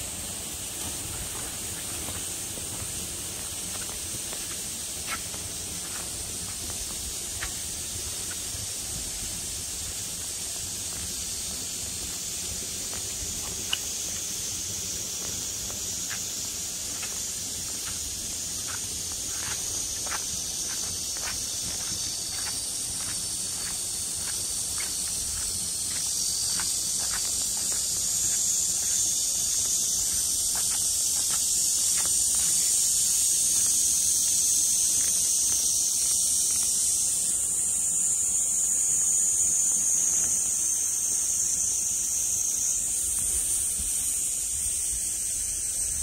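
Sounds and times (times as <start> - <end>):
high-pitched insect chorus: 0.0 - 46.0
footsteps on grass: 0.6 - 9.1, 9.8 - 37.0.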